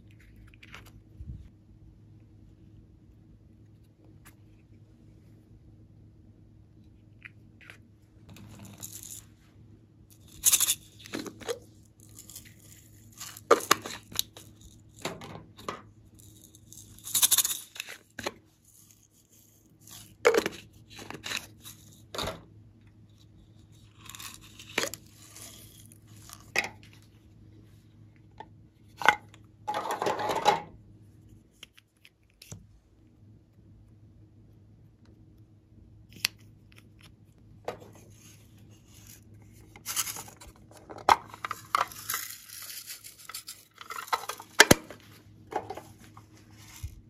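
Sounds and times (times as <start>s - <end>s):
crackling rustle: 41.5s - 47.0s.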